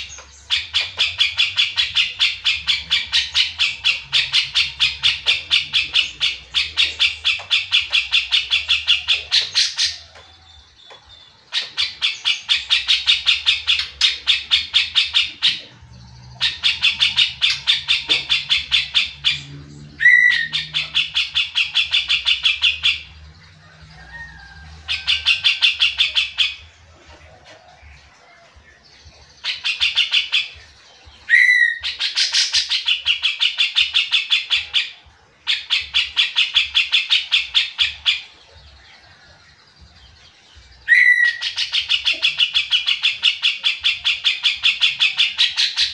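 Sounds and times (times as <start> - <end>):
bulbul singing harsh repeated notes: 0.0 - 23.9.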